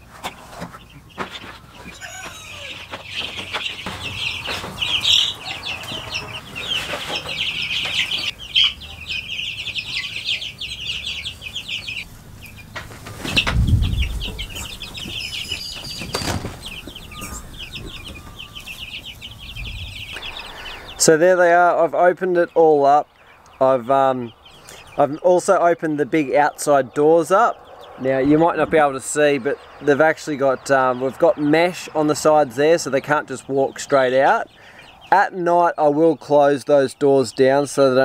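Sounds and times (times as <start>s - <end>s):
chicks peeping: 0.0s - 38.0s
heavy low thump: 13.4s - 15.2s, 28.2s - 30.0s.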